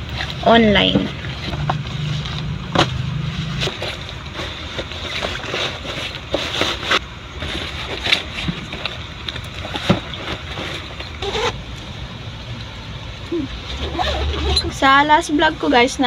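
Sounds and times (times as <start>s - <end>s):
rustling of school things: 0.0s - 12.0s
steady background noise: 0.0s - 16.0s.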